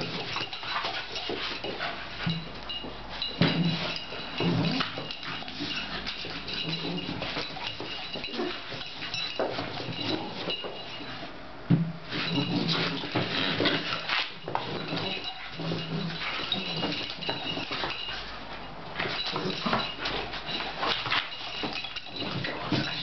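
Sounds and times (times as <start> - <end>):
dogs scuffling: 0.0 - 11.4, 12.0 - 23.0
dogs growling: 3.3 - 10.5.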